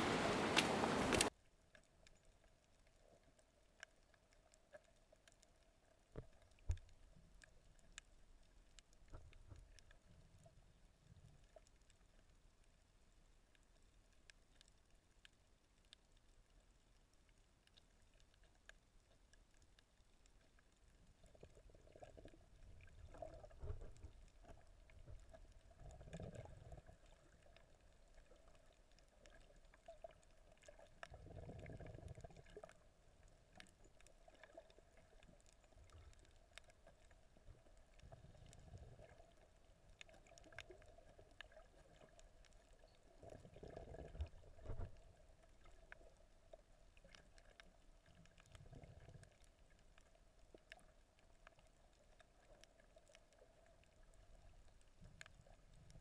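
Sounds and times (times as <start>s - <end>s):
faint steady hum: 0.0s - 1.3s
underwater water movement: 0.0s - 1.3s, 17.2s - 56.0s
faint clicks: 0.0s - 2.2s.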